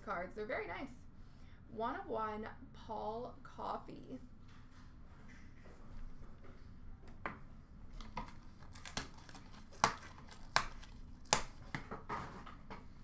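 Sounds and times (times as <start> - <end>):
packaging crinkling: 8.0 - 11.8.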